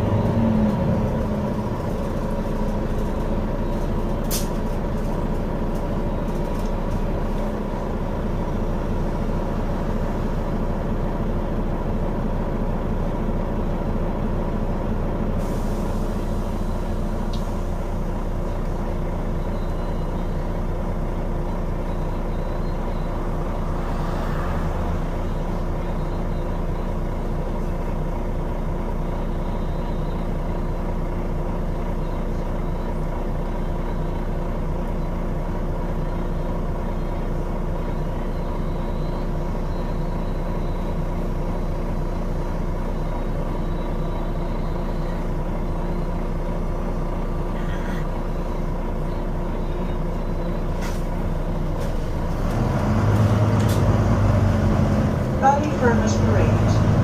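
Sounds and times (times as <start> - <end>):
bus engine drone: 0.0 - 57.0
steady whining tones: 21.8 - 27.1.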